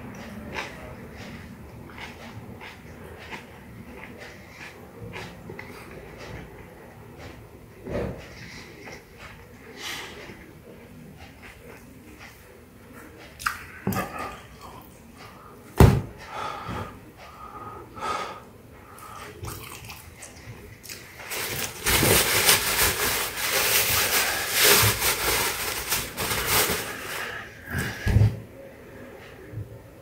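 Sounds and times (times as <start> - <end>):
paper towel crinkling: 21.2 - 27.6.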